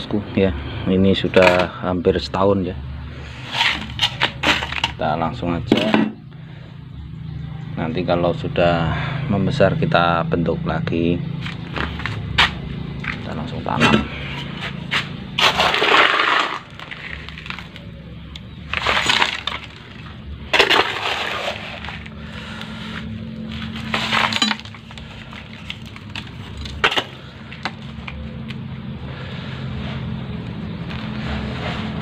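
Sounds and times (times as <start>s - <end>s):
low hum: 8.9s - 32.0s
sand pouring into plastic pot: 15.4s - 17.7s, 20.6s - 22.1s.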